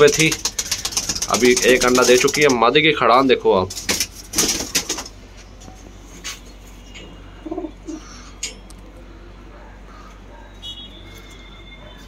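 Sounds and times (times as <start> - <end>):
sharp clicks: 0.0 - 2.6
pigeon cooing: 7.3 - 8.5.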